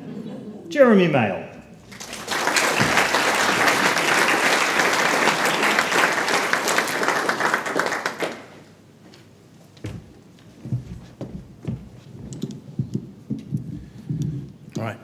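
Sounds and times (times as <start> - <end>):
audience applauding: 1.8 - 8.8.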